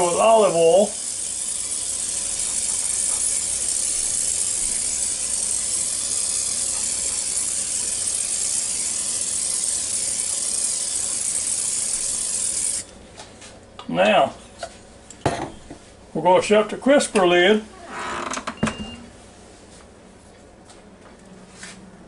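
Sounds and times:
oil sprayer hissing: 0.0s - 12.9s.

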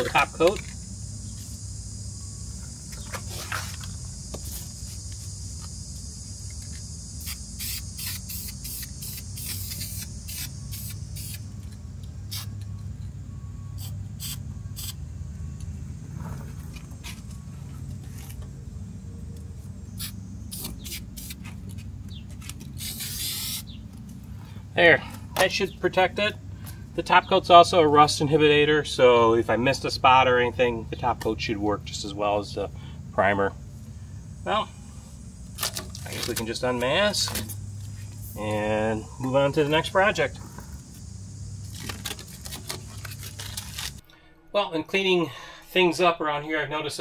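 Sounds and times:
steady low hum: 0.0s - 44.5s
aerosol spray can hissing: 7.1s - 11.5s, 13.8s - 15.0s, 20.0s - 21.4s, 22.8s - 23.7s.

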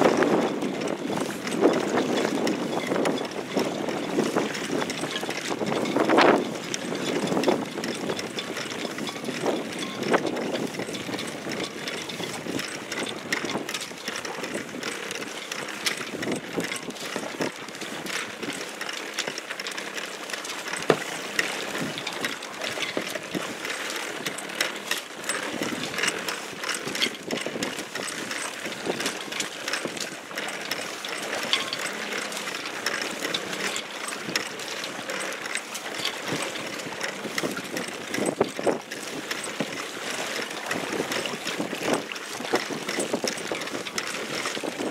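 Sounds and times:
wind on microphone: 0.0s - 13.7s, 36.2s - 39.8s, 40.7s - 44.9s
boat fittings clicking and rattling: 0.0s - 44.9s
water splashing against hull: 0.0s - 44.9s.

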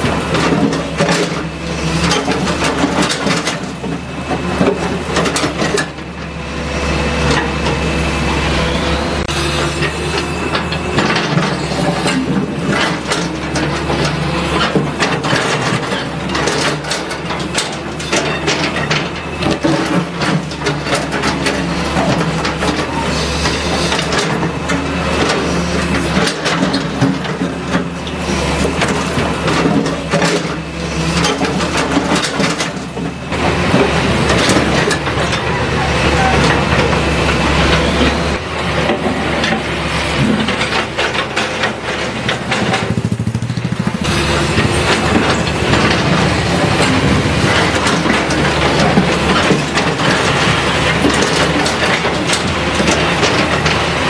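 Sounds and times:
excavator diesel engine running: 0.0s - 54.0s
rubble crunching and clattering: 36.3s - 54.0s.

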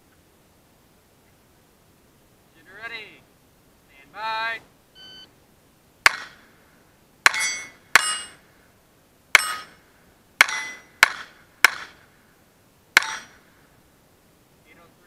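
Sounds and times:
pistol shots: 6.0s - 6.4s
steel plate ringing when hit: 7.3s - 8.4s, 9.4s - 9.8s, 10.4s - 11.8s, 13.0s - 13.4s.

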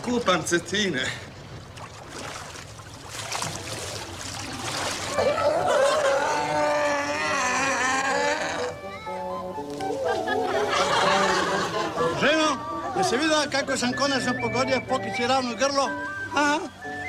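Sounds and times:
water splashing and sloshing: 0.0s - 6.7s
crowd laughing and calling out: 5.1s - 6.6s, 10.0s - 13.6s
background music: 5.5s - 17.0s.

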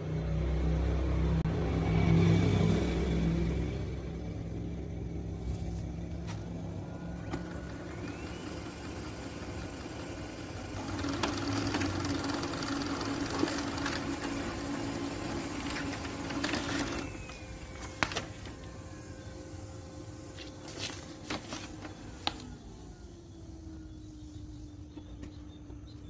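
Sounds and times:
laser printer printing: 6.1s - 26.0s.

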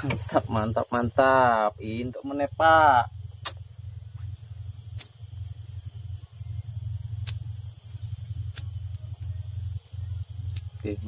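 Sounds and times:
insects droning: 0.0s - 11.0s
low hum: 0.0s - 11.0s
short sharp clicks: 3.4s - 3.6s.

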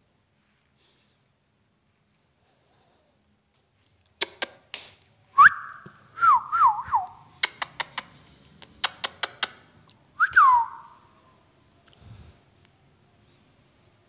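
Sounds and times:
parakeet clicking: 7.4s - 9.6s.

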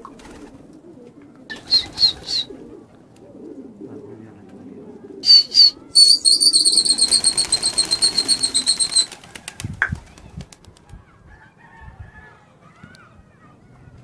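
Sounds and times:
pigeon wings flapping: 0.0s - 0.8s, 1.5s - 2.5s, 6.2s - 11.0s
shrill whistle trilling: 5.2s - 9.1s
faint bird chirps: 5.2s - 10.4s.

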